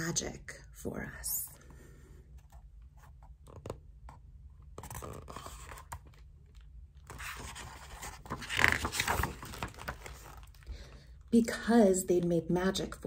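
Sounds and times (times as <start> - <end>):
book page rustling and turning: 2.3 - 10.8.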